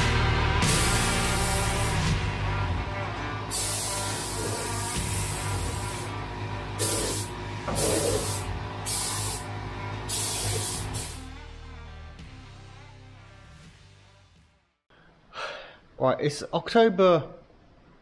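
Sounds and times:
spray gun hissing: 0.6s - 2.1s, 3.5s - 6.2s, 6.8s - 9.5s, 10.1s - 11.3s.

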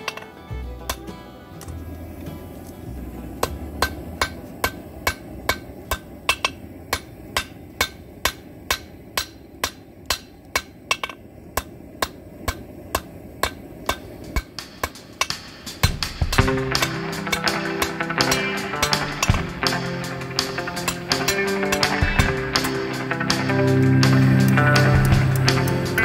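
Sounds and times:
hammer striking steel: 0.0s - 1.2s, 3.4s - 26.0s.

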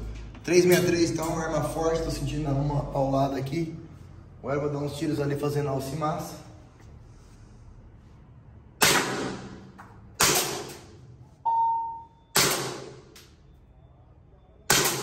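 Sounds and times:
airsoft pistol shots: 8.8s - 10.9s, 12.3s - 13.1s, 14.7s - 15.0s.

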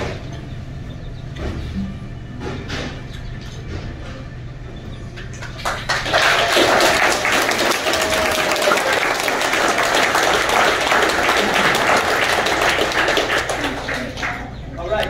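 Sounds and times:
audience applause: 5.4s - 14.9s
voices calling out: 5.9s - 15.0s.

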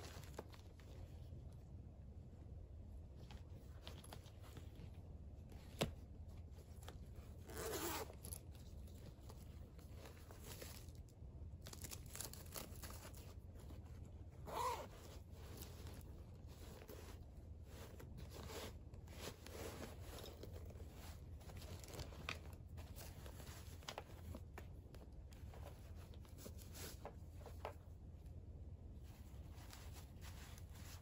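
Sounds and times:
bags rustling: 14.4s - 24.6s.

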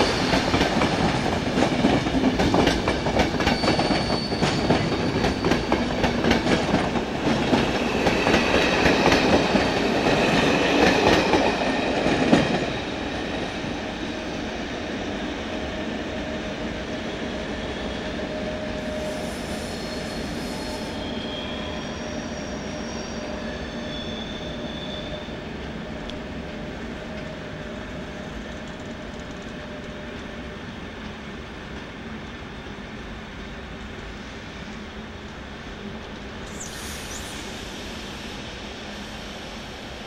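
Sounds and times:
train wheels rumbling: 0.0s - 33.0s
high wheel squeals: 3.4s - 6.0s, 18.6s - 25.4s.

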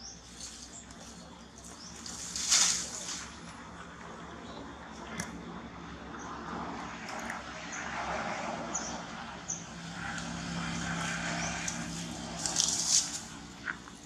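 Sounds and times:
motor vehicle passing: 0.0s - 14.0s
leaves rustling and snapping: 0.3s - 3.5s, 11.4s - 14.0s.

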